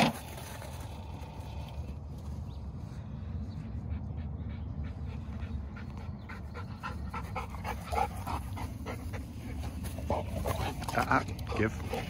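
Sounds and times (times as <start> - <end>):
dog panting: 3.6 - 12.0.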